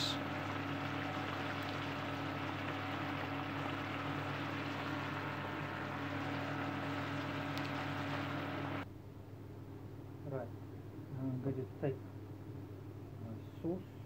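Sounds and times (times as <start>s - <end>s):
food simmering with bubbling hiss: 0.0s - 8.8s
low even hum: 0.0s - 14.0s.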